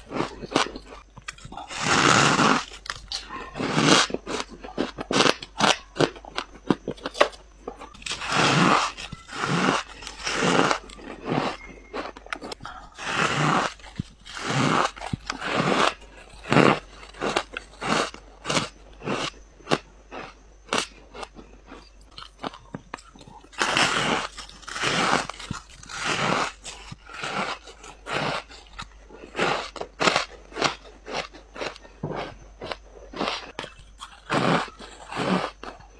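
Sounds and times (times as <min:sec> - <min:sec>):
crunchy chewing of frost: 0:00.0 - 0:35.9.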